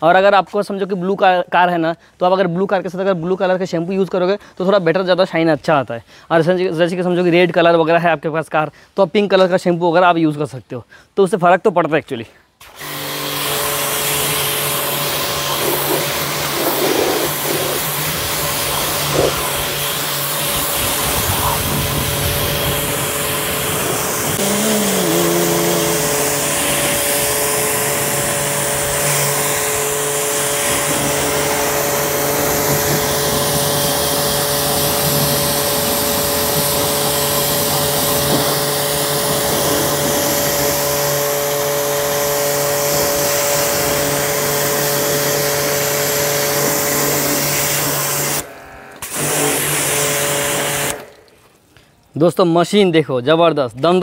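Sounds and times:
pressure washer motor humming: 12.6 - 51.1
water jet spraying on car: 12.8 - 48.4, 49.0 - 51.1.

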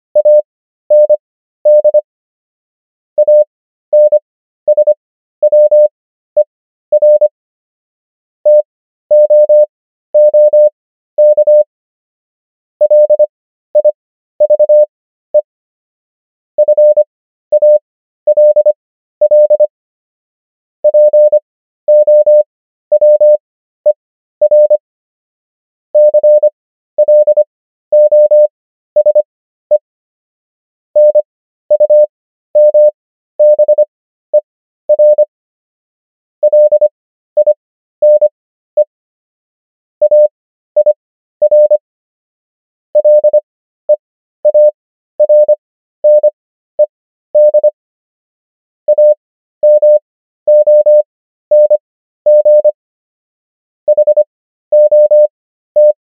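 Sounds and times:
morse code beeps: 0.2 - 2.0, 3.2 - 7.3, 8.5 - 11.7, 12.8 - 14.8, 16.6 - 19.7, 20.8 - 23.4, 24.4 - 24.8, 26.0 - 29.3, 31.0 - 33.8, 34.9 - 35.2, 36.4 - 38.9, 40.0 - 41.8, 43.0 - 43.4, 44.4 - 46.3, 47.4 - 47.7, 48.9 - 52.8, 53.9 - 56.0.

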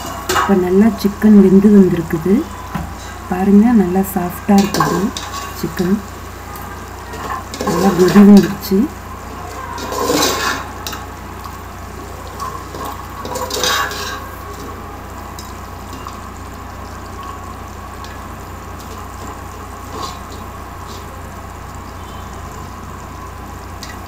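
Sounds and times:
curry boiling in a pot: 0.0 - 24.0
metal ladle scraping a pot: 9.7 - 11.0, 12.4 - 14.4.

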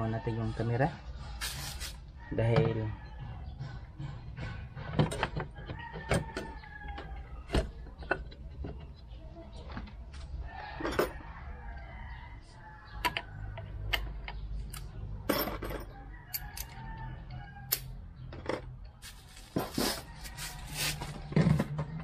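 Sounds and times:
scraping strokes: 1.4 - 2.0, 19.0 - 21.6.

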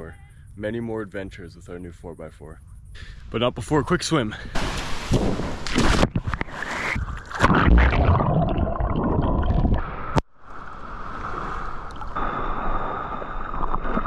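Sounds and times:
water splashing from swimming: 4.6 - 9.8.

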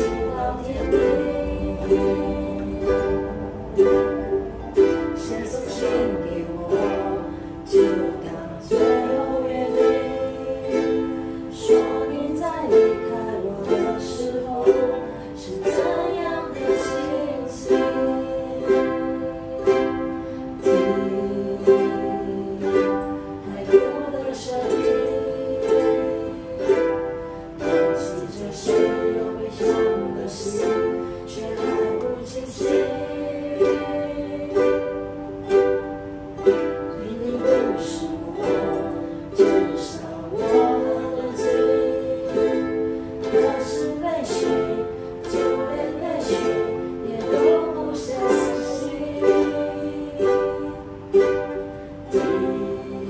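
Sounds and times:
plucked ukulele melody: 0.0 - 53.0
ukuleles strumming chords: 0.0 - 53.0.

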